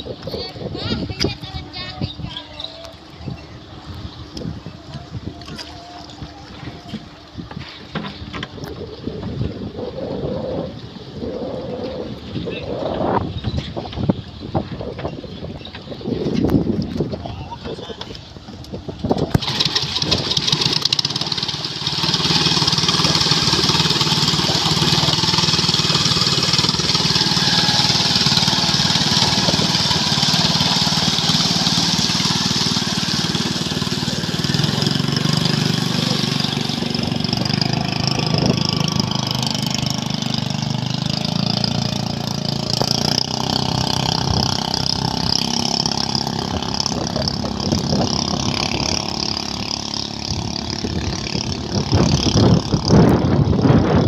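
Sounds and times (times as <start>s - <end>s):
ship diesel engine drone: 18.3s - 54.0s.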